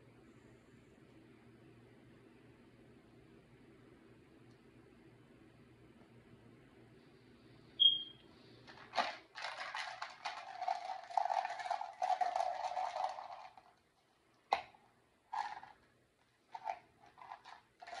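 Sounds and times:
short high beep: 0:07.8 - 0:08.2
plastic rattling and clattering: 0:08.7 - 0:13.9, 0:14.5 - 0:15.9, 0:16.5 - 0:18.0.

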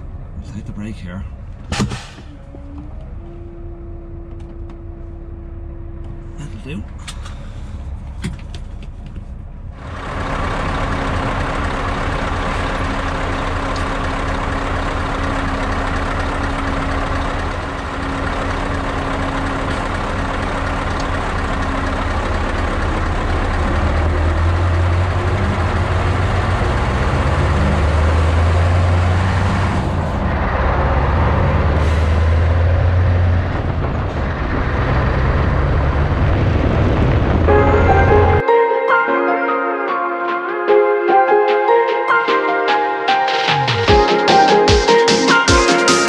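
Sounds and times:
diesel truck engine idling: 0:08.9 - 0:38.4
truck engine revving pulling away: 0:09.8 - 0:38.4.

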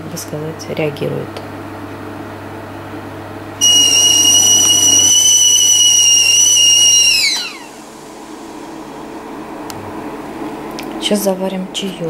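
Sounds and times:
kettle whistling: 0:03.6 - 0:09.2.

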